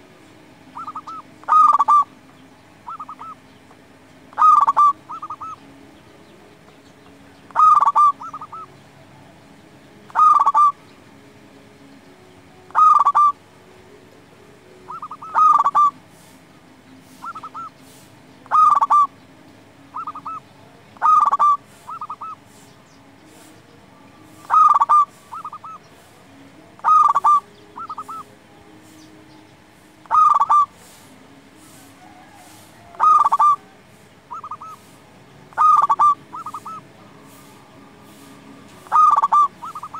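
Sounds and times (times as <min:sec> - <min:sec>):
dove cooing: 0:00.7 - 0:02.2, 0:02.8 - 0:03.4, 0:04.3 - 0:05.7, 0:07.4 - 0:09.4, 0:10.1 - 0:10.8, 0:12.7 - 0:13.4, 0:14.8 - 0:16.4, 0:17.0 - 0:19.2, 0:19.9 - 0:23.6, 0:24.2 - 0:39.9.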